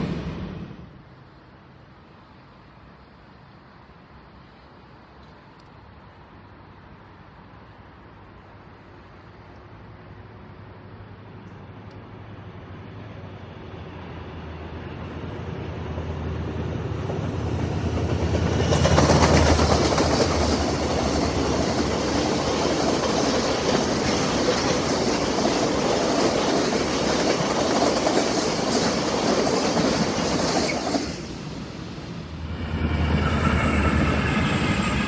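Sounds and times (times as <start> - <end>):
locomotive engine hum: 0.0 - 35.0
wagon wheels on rails: 18.0 - 31.2.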